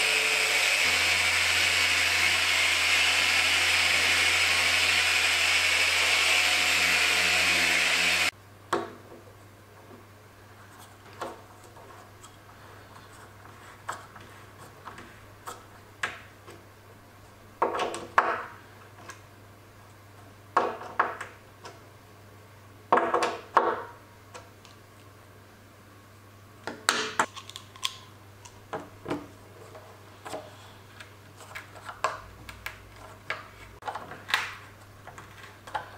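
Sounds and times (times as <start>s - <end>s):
power sander running: 0.0s - 8.3s.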